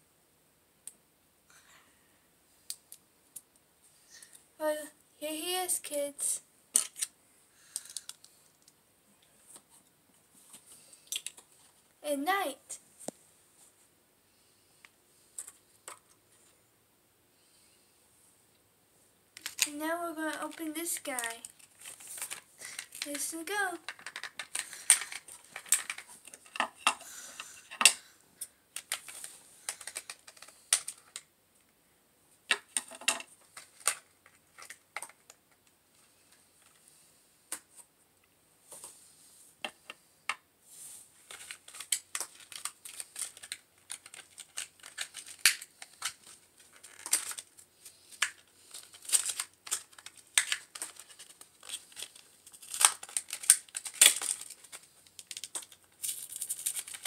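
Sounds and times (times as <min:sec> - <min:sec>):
crinkling plastic wrapper: 0:19.4 - 0:26.9, 0:28.8 - 0:31.3, 0:41.2 - 0:57.0
hard plastic parts clicking: 0:28.8 - 0:31.2.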